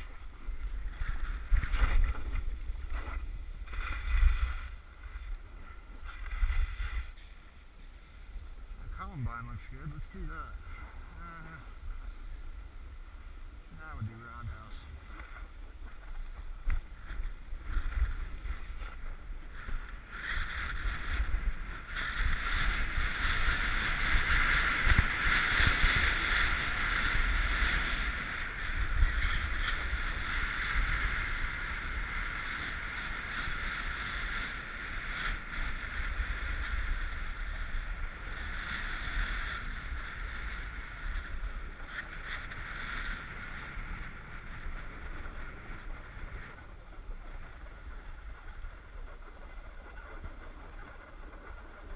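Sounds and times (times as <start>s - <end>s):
snowboard scraping over snow: 0.0s - 51.9s
wind buffeting microphone: 0.0s - 51.9s.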